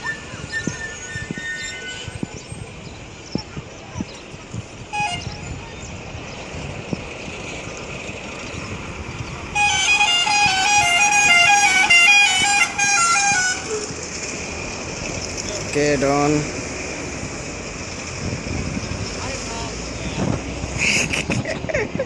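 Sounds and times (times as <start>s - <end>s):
road traffic: 0.0s - 22.0s
musical car horn: 4.9s - 5.4s, 9.5s - 14.0s.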